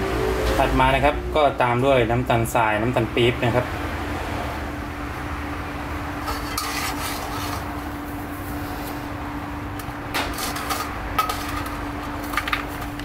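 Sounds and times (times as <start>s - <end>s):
metal spatula scraping a wok: 6.2s - 8.8s, 10.2s - 11.8s.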